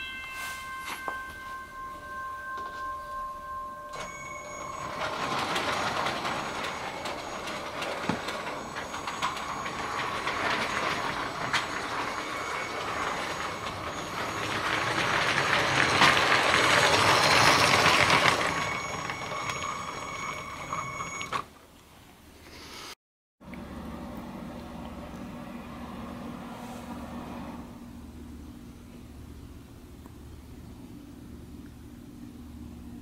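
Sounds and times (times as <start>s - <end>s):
toy train rolling and whirring: 3.2s - 21.5s.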